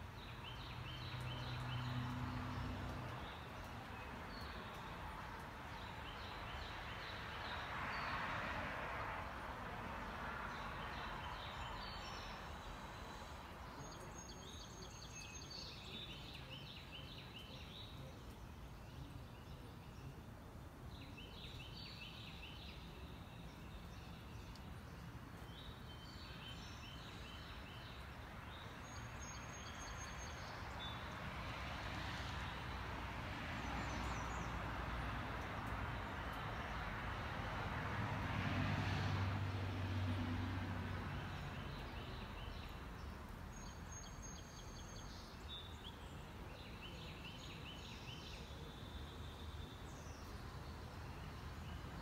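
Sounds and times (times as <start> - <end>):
small bird singing: 11.2 - 20.2.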